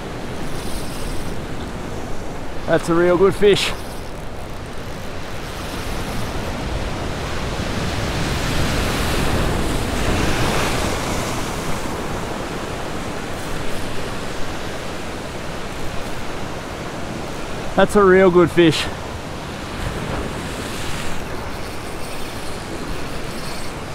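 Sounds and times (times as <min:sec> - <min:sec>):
waves washing: 0:00.0 - 0:23.9
wave crashing on rocks: 0:05.4 - 0:23.9.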